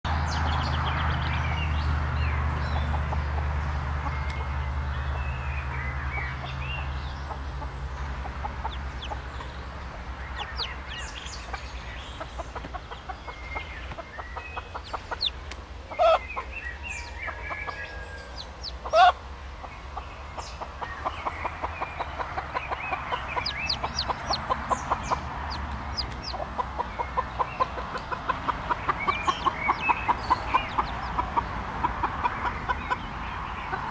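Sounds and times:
chicks peeping: 0:00.3 - 0:33.9
hen clucking: 0:06.2 - 0:33.1.

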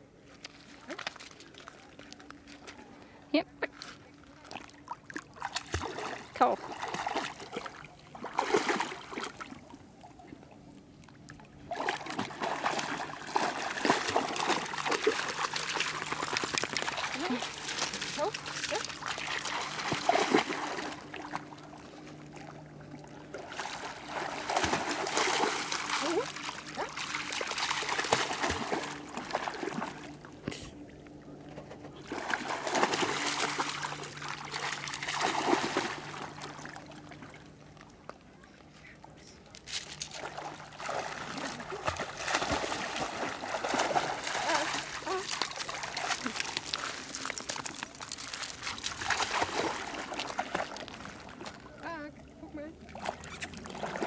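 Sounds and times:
dog splashing in water: 0:05.1 - 0:09.5, 0:11.7 - 0:21.7, 0:23.4 - 0:30.1, 0:32.0 - 0:36.8, 0:40.1 - 0:51.6, 0:52.9 - 0:54.0.

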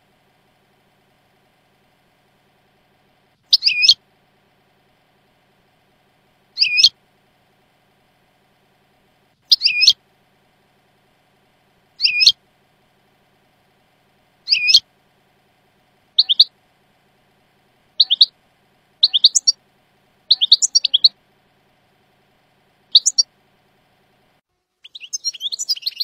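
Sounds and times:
goldfinch twittering song: 0:03.5 - 0:04.0, 0:06.6 - 0:06.9, 0:09.5 - 0:10.0, 0:12.0 - 0:12.4, 0:14.5 - 0:14.8, 0:16.2 - 0:16.5, 0:18.0 - 0:18.3, 0:19.0 - 0:19.6, 0:20.3 - 0:21.1, 0:22.9 - 0:23.2, 0:24.8 - 0:26.0.

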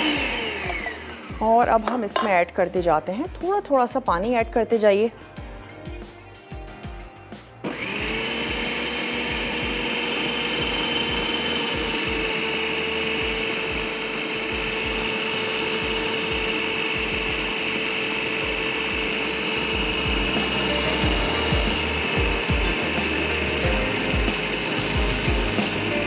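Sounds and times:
food chopper motor whining: 0:00.0 - 0:02.4, 0:07.6 - 0:26.0.

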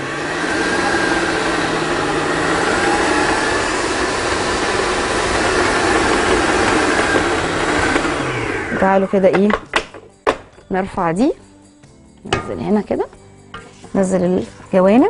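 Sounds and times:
stand mixer motor whirring: 0:00.0 - 0:09.5.

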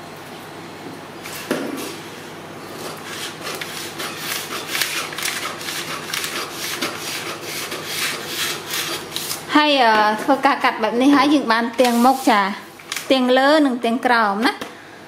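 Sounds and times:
shears snipping paper: 0:03.1 - 0:09.4.

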